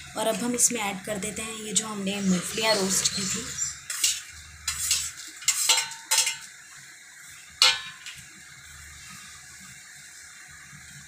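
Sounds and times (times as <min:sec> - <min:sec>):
metal spoon clinking on metal: 0:04.0 - 0:06.4.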